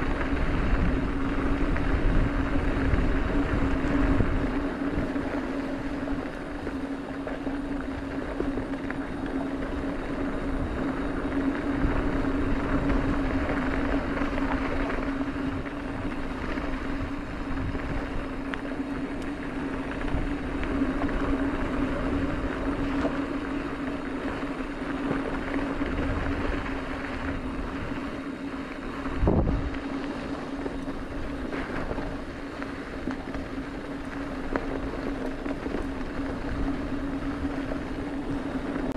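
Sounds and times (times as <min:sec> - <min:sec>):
bike tyre and drivetrain noise: 0:00.0 - 0:38.9
low hum: 0:00.0 - 0:38.9
wind on microphone: 0:00.0 - 0:38.9.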